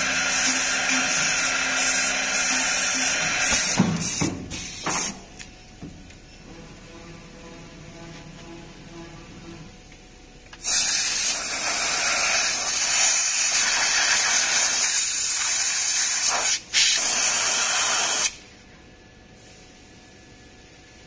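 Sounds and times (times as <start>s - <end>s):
compressed air blow gun hissing: 10.6s - 18.3s.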